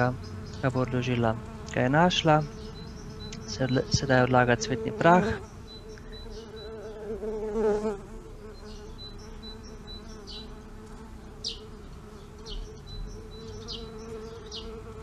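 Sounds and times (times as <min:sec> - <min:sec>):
bumblebees buzzing: 0:00.0 - 0:15.0.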